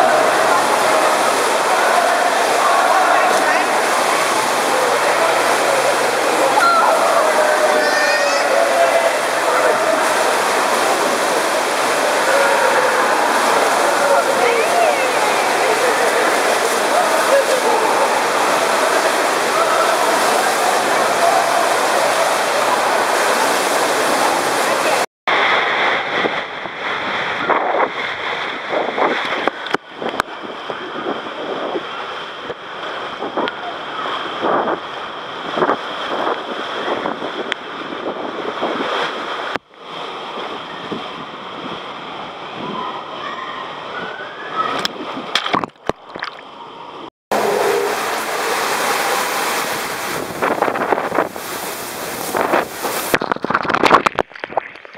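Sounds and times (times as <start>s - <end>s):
water rushing through slide tube: 0.0s - 54.9s
wind buffeting microphone: 25.8s - 39.6s, 40.4s - 45.6s, 49.4s - 54.9s.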